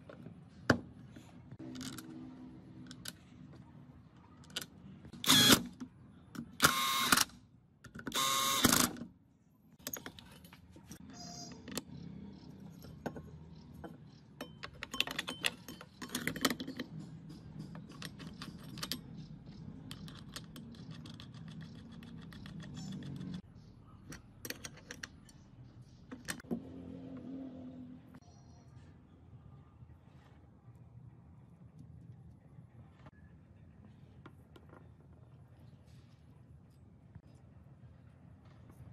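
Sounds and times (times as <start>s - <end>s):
power drill driving screw: 8.2s - 8.9s
metal parts clicking: 14.4s - 23.4s, 24.1s - 25.5s.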